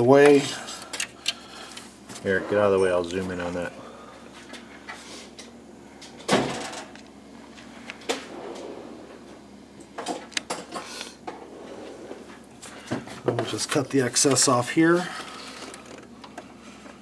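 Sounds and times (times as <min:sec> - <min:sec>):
clicks and rustles of wiring: 0:13.2 - 0:17.0.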